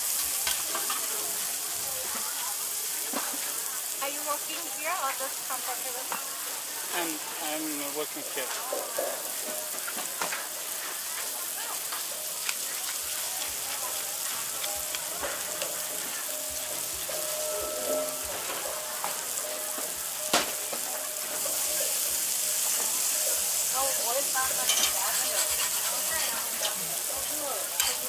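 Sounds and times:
food sizzling on a griddle: 0:00.0 - 0:28.0.

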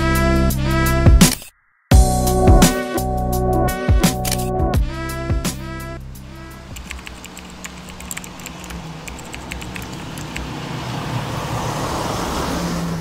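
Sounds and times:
small clicks: 0:04.2 - 0:04.5, 0:06.7 - 0:10.5
car engine approaching: 0:06.3 - 0:13.0.

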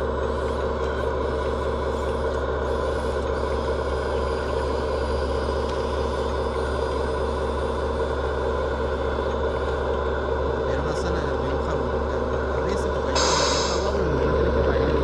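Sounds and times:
toy excavator motor drone: 0:00.0 - 0:10.3, 0:12.7 - 0:14.0
faint high whine: 0:13.0 - 0:14.2.

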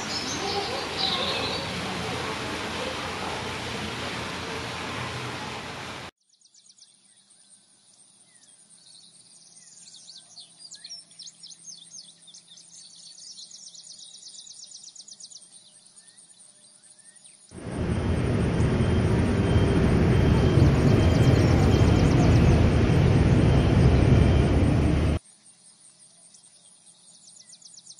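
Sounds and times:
small birds chirping: 0:00.0 - 0:03.5, 0:08.2 - 0:25.2
loud rushing noise: 0:17.6 - 0:25.2.

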